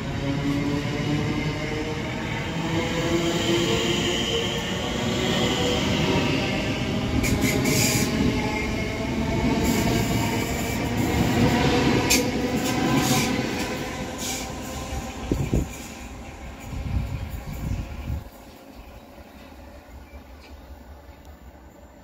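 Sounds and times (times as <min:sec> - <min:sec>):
train wheels rumbling on rails: 0:00.0 - 0:21.6.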